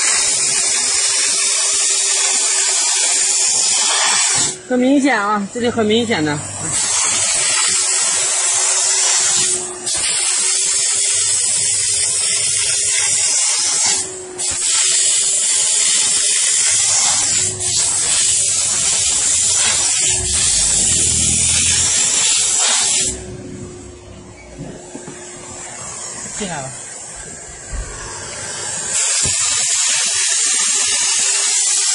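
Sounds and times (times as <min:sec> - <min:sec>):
steam nozzle hissing: 0:00.0 - 0:23.5, 0:27.6 - 0:31.9
low steady hum: 0:20.0 - 0:22.4, 0:23.1 - 0:25.0.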